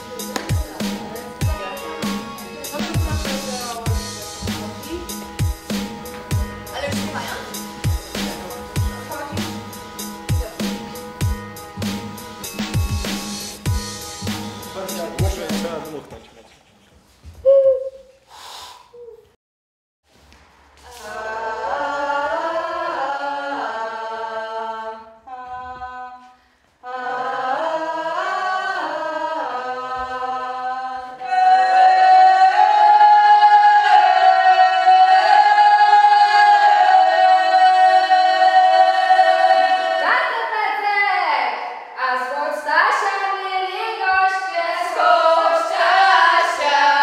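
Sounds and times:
group singing a cappella: 0.0s - 11.1s, 20.8s - 40.8s, 43.0s - 47.0s
hoot blown into cupped hands: 17.4s - 19.4s.

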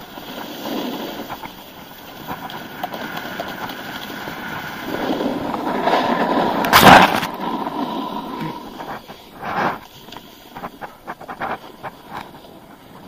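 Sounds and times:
snowboard scraping over snow: 0.0s - 13.0s.

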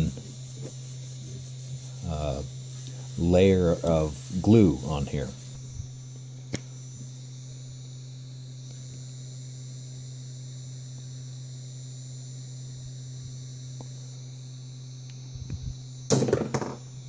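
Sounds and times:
faint high hiss: 0.0s - 5.9s
low electrical hum: 0.0s - 17.0s.

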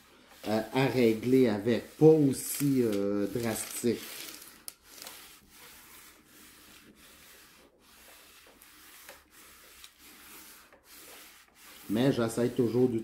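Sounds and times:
iron rubbing over paper: 0.0s - 13.0s.

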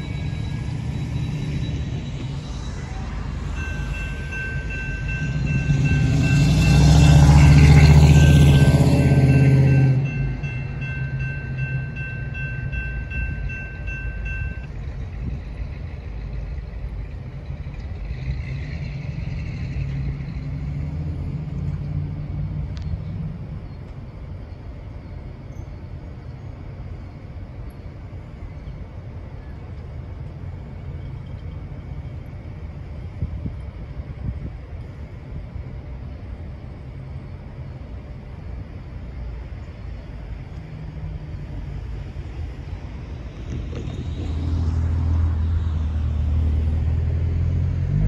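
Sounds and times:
train wheels squealing: 0.0s - 21.4s, 22.8s - 26.6s
diesel locomotives rumbling: 0.0s - 48.0s.

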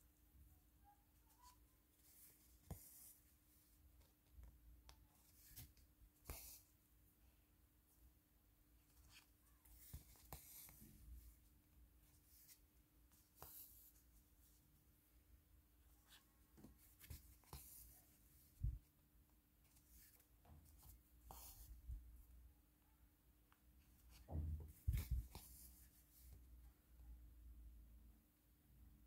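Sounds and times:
needle and thread rustling: 0.0s - 6.9s, 8.7s - 14.7s, 15.8s - 22.3s, 23.8s - 26.6s.

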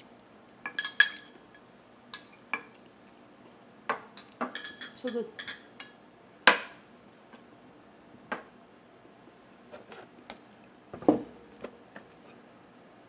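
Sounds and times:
metal spoon clinking glass bowl: 0.7s - 1.4s, 4.2s - 5.9s.

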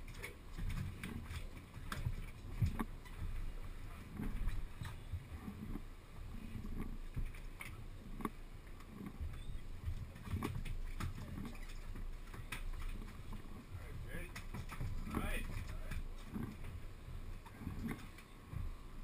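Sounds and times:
sharp clicks and knocks: 0.0s - 3.5s, 6.6s - 16.8s
water sloshing against boat hull: 0.0s - 19.0s.

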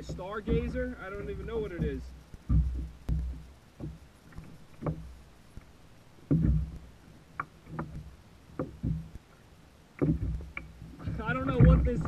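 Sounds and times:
knocks on plastic kayak hull: 0.0s - 4.0s, 10.0s - 12.0s.

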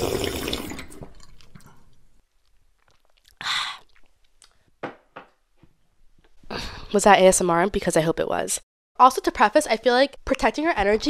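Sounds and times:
person sipping from a mug: 2.8s - 4.6s.

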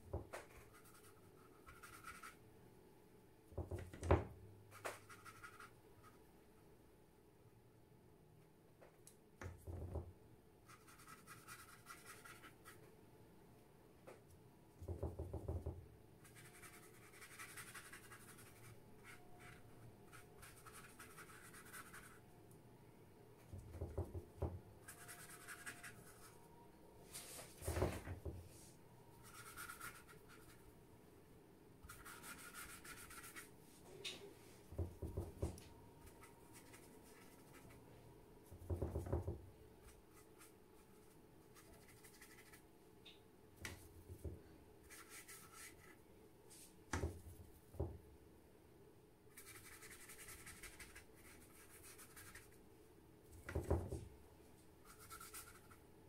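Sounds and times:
soft knocks: 34.7s - 35.6s.

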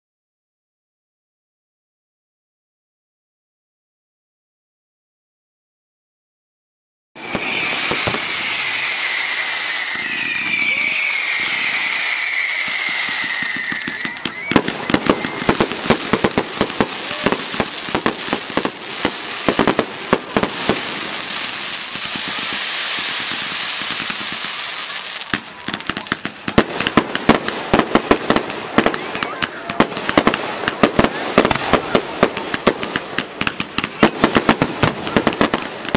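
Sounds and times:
firework hissing: 7.2s - 35.9s
firework whistle: 7.2s - 35.9s
fireworks crackling: 7.2s - 35.9s.

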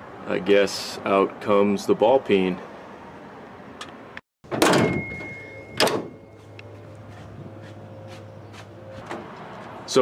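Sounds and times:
high ringing tone: 4.7s - 6.6s.

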